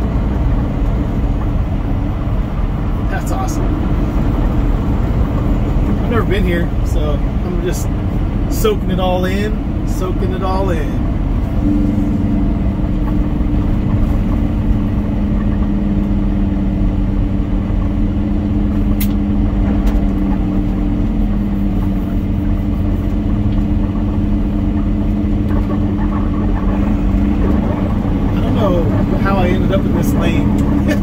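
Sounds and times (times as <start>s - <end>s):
low hum tones: 0.0s - 31.0s
truck engine and tyres droning: 0.0s - 31.0s
brief click: 19.0s - 19.2s.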